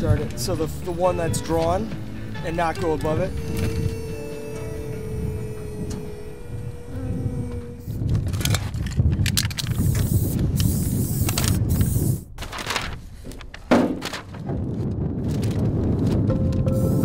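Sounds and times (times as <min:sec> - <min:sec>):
wind buffeting microphone: 0:00.0 - 0:13.2, 0:14.1 - 0:17.0
paper sheets rustling: 0:12.3 - 0:16.7.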